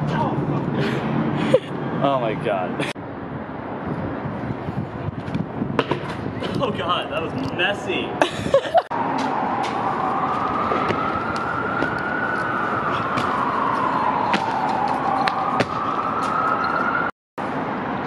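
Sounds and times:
city noise: 0.0 - 18.0
emergency siren wailing: 8.9 - 17.1.

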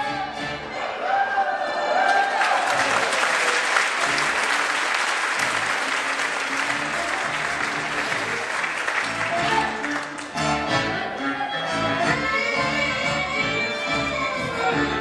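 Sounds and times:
audience applauding: 1.6 - 10.4.

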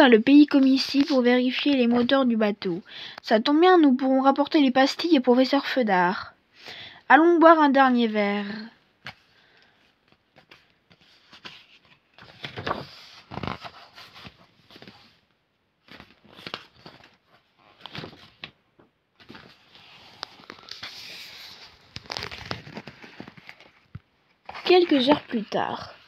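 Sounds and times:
paper pages rustling: 0.5 - 2.2, 9.0 - 15.2, 15.8 - 18.6, 19.2 - 26.0.

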